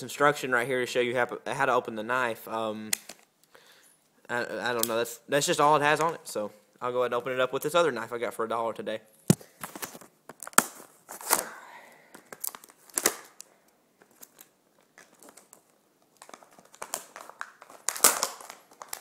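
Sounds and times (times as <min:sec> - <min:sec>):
packaging rustling: 0:09.3 - 0:11.5, 0:12.1 - 0:19.0.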